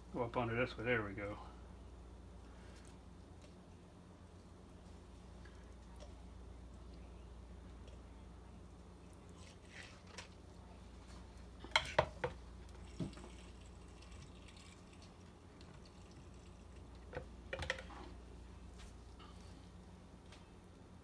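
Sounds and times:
liquid gurgling: 0:12.7 - 0:17.5.

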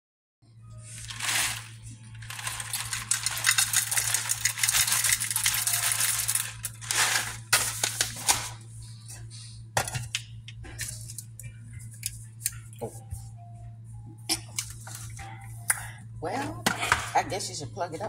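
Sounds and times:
coffee beans pouring into metal bowl: 0:01.0 - 0:08.4.

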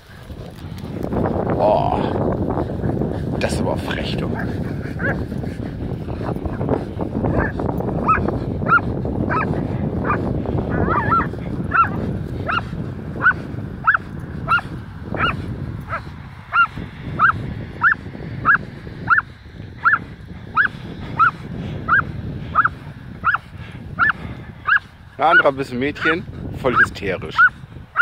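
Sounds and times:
dog squealing: 0:07.3 - 0:12.6, 0:16.5 - 0:19.2, 0:20.6 - 0:21.3, 0:22.6 - 0:23.4, 0:24.0 - 0:24.8.

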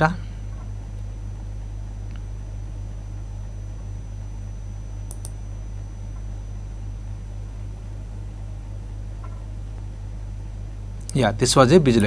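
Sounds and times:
faint high whine: 0:00.0 - 0:12.0
low electrical hum: 0:00.0 - 0:12.0
quick clicks: 0:05.1 - 0:05.4.

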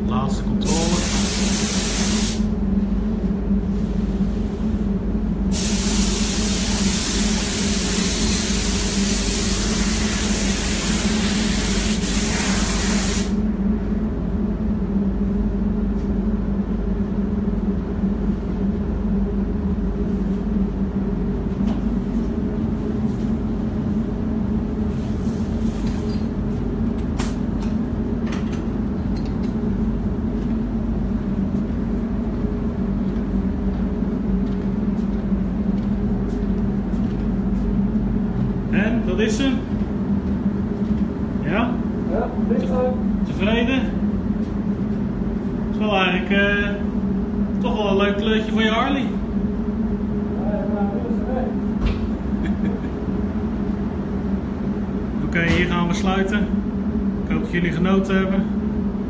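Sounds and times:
ventilation hum: 0:00.0 - 0:59.0
paint spray gun hissing: 0:00.7 - 0:02.5, 0:05.6 - 0:13.4.

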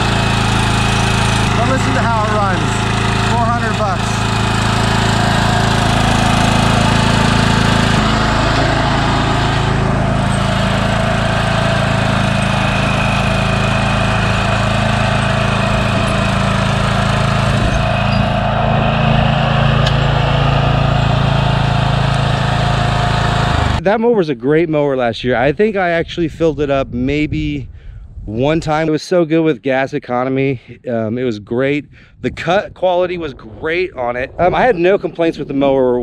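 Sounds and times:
lawn mower engine running: 0:00.0 - 0:23.9.

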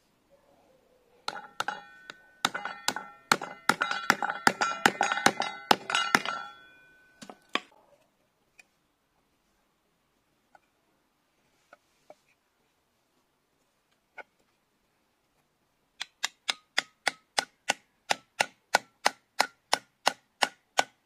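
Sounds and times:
hammer tapping metal with ringing: 0:01.3 - 0:07.5.

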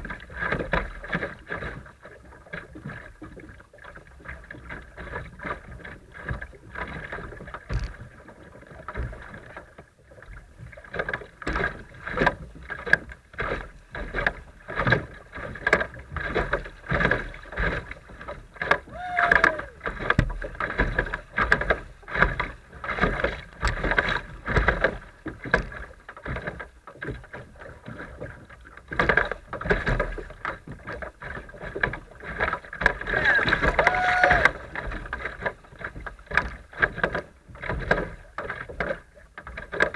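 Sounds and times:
water splashing on kayak hull: 0:00.0 - 0:39.9
river water rushing: 0:18.9 - 0:19.8, 0:33.1 - 0:34.7.

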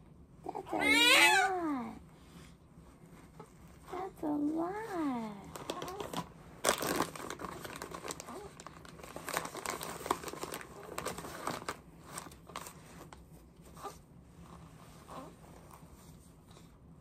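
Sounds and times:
plastic diaper crinkling: 0:04.8 - 0:14.0
sharp plastic crackles: 0:05.5 - 0:13.2.

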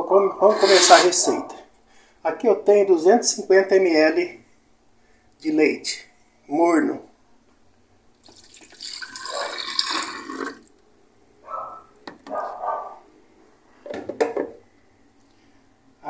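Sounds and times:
milk pouring and splashing: 0:08.2 - 0:10.7.

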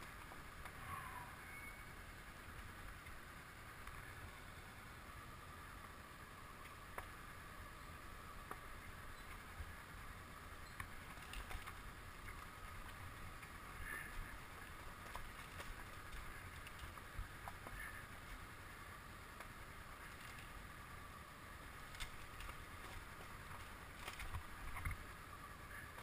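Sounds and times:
motorcycle rumble on gravel: 0:08.0 - 0:26.0.

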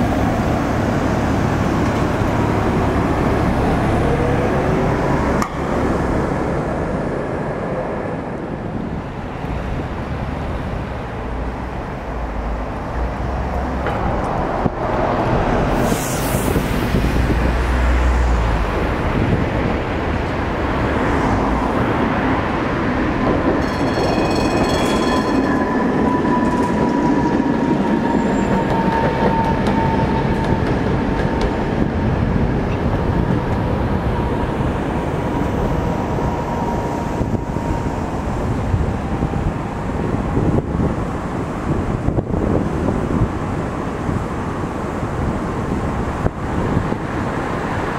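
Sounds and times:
passing tram whine: 0:00.0 - 0:47.9
traffic rumble: 0:00.0 - 0:47.9
high ringing tone: 0:23.6 - 0:27.5.

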